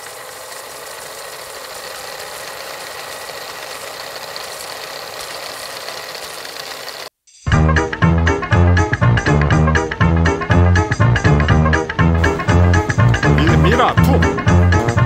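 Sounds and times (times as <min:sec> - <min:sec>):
film projector whirring: 0:00.0 - 0:07.1, 0:12.2 - 0:15.0.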